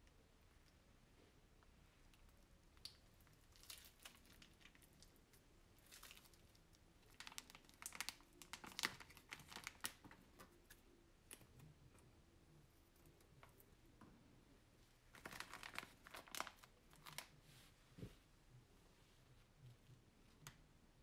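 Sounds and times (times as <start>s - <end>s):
plastic piping bag crinkling: 2.8s - 10.8s, 15.0s - 17.4s.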